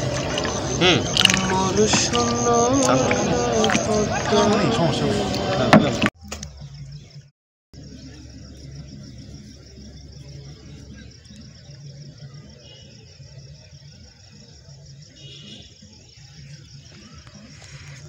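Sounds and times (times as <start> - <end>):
high-pitched pulsing chirr: 0.0 - 4.4.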